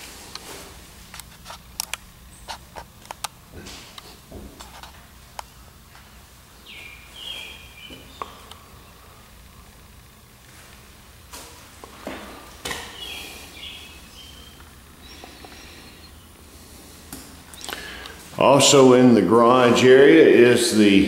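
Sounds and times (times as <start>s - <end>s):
low steady hum: 0.0s - 21.0s
high chirping: 5.4s - 9.2s, 12.3s - 16.4s.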